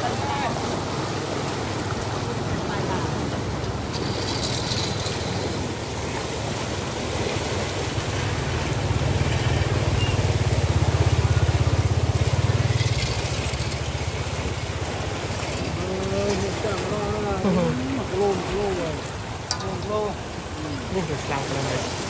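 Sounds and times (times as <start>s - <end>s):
small engine puttering: 9.9s - 14.7s.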